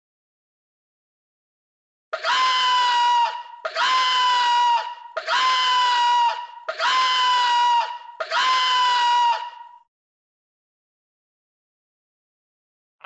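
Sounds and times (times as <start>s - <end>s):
high-pitched cartoon cry: 2.2s - 9.8s.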